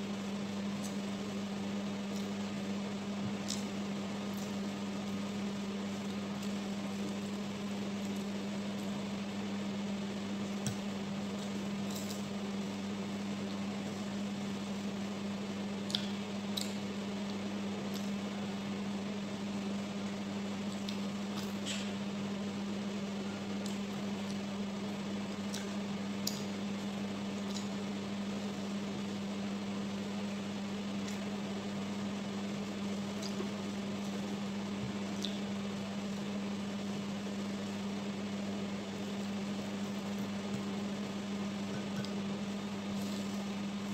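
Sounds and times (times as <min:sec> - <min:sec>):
steady low hum: 0:00.0 - 0:43.9
faint chewing: 0:03.3 - 0:05.2, 0:15.8 - 0:18.2, 0:20.7 - 0:21.9, 0:25.3 - 0:27.8, 0:34.9 - 0:35.6.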